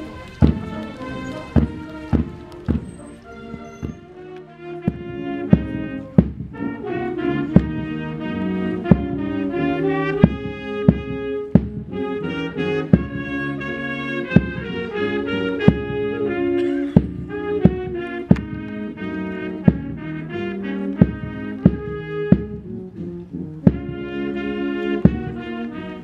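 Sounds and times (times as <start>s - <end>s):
drum beating steadily: 0.0s - 25.9s
brass band playing: 0.0s - 26.0s.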